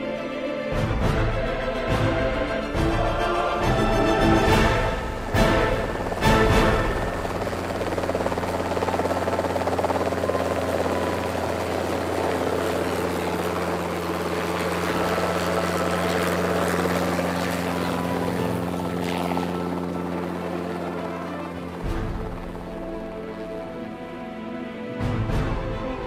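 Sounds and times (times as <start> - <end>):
helicopter rotor and engine: 0.0 - 26.0.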